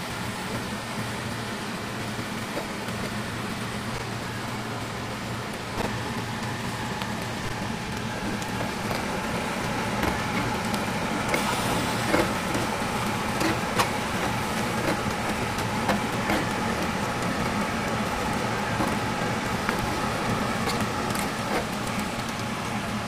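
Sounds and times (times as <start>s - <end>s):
meat sizzling on a grill: 7.6s - 22.2s.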